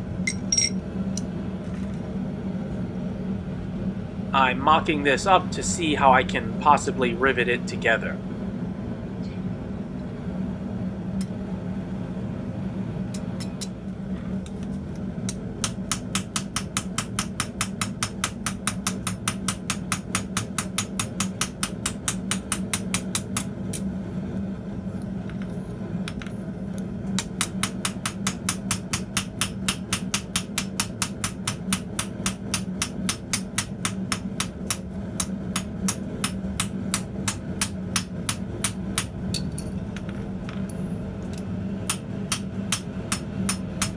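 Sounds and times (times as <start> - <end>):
hammer striking copper on anvil: 0.3 - 0.8, 15.2 - 23.5, 27.2 - 43.9.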